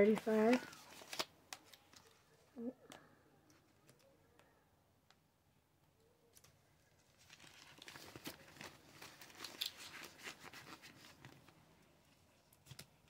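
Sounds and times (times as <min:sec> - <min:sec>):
paper money rustling: 0:00.0 - 0:02.2, 0:06.4 - 0:11.6.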